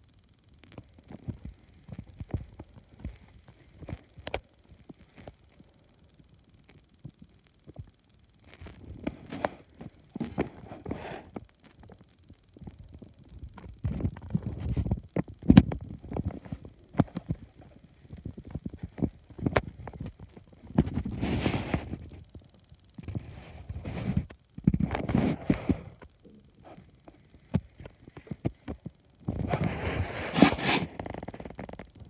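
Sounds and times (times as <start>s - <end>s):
microphone handling rustling: 13.0s - 22.3s, 27.5s - 31.9s.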